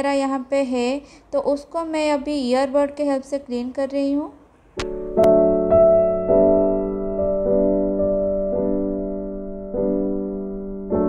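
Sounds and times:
soft piano chords: 4.8s - 11.0s.

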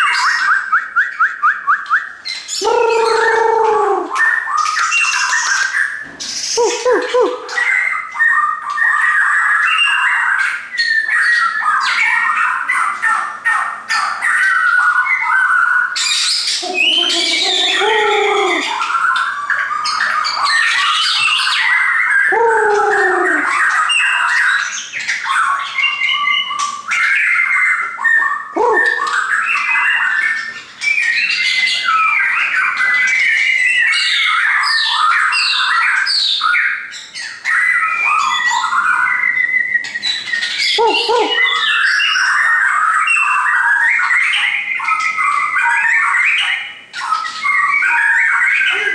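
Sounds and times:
birds singing whistled phrases: 0.0s - 48.9s.

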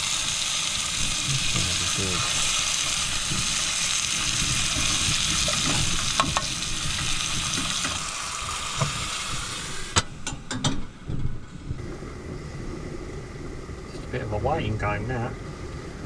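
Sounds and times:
onions sizzling in a pan: 0.0s - 10.2s.

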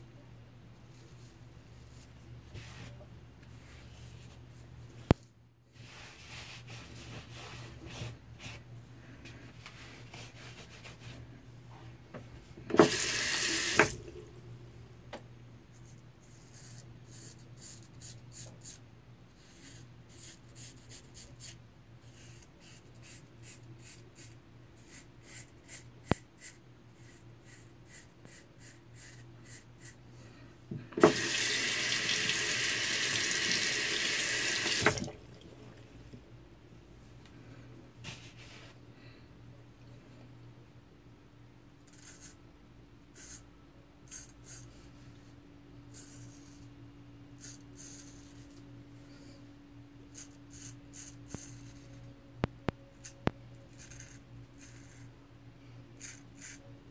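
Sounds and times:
tap running into sink: 12.7s - 14.0s, 31.0s - 31.4s, 34.6s - 35.2s
razor scraping stubble: 19.4s - 30.0s, 53.7s - 55.1s.

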